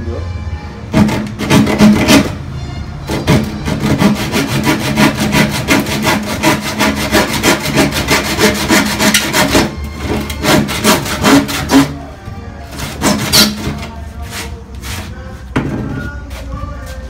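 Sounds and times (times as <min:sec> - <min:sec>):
hand saw cutting wood: 0:00.9 - 0:02.4, 0:03.1 - 0:12.0, 0:12.7 - 0:15.2.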